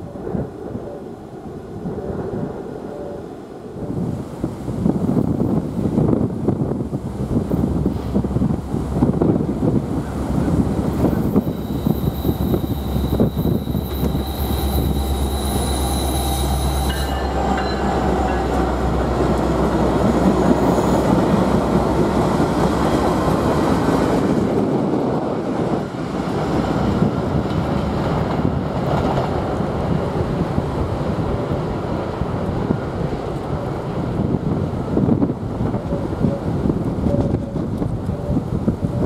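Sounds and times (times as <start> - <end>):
wheels rumbling on rails: 0.0 - 39.0
locomotive engines droning: 6.8 - 39.0
high-pitched wheel squeal: 11.1 - 18.4.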